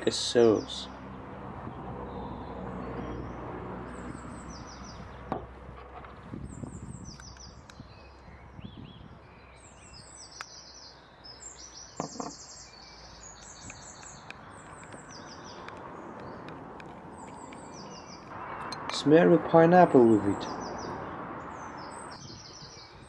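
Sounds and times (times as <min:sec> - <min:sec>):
outdoor background hum: 0:00.0 - 0:19.0
songbirds chirping: 0:00.0 - 0:23.0.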